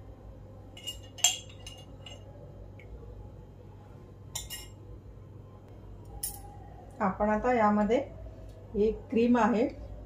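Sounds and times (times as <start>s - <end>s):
faint low hum: 0.0s - 10.0s
glass dishes clinking: 0.8s - 2.3s, 4.4s - 4.8s.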